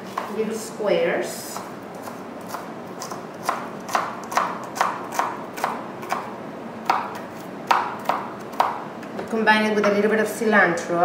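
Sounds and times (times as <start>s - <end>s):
knife chopping on plastic board: 1.6s - 8.8s.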